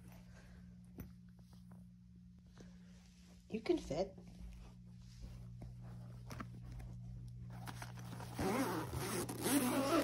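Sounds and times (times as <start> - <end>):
zipper being pulled: 7.6 - 10.0.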